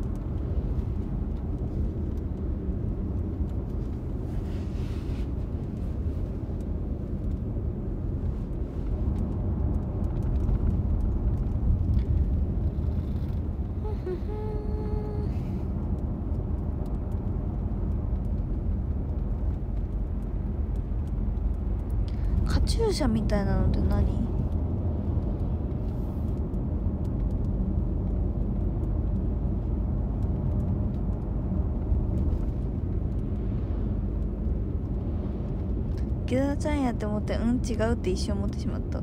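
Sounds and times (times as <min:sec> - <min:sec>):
vehicle cabin rumble: 0:00.0 - 0:39.0
faint steady tone: 0:13.8 - 0:15.6.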